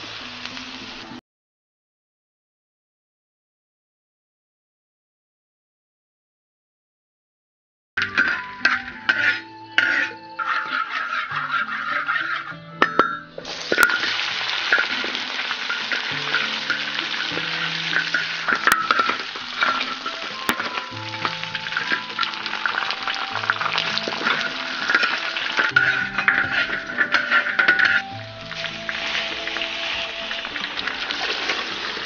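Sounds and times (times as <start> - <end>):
meat sizzling in a wok: 0.0 - 1.2, 8.1 - 12.6, 13.4 - 32.0
spatula scraping wok: 8.0 - 32.0.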